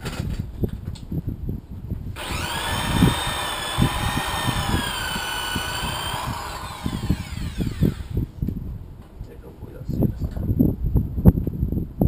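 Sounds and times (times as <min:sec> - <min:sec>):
electric polisher motor whine: 0:02.2 - 0:08.2.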